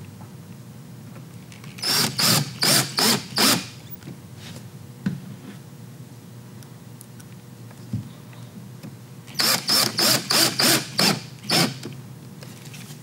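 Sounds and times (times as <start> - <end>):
cordless drill driving screw: 1.8 - 3.7, 9.4 - 11.8.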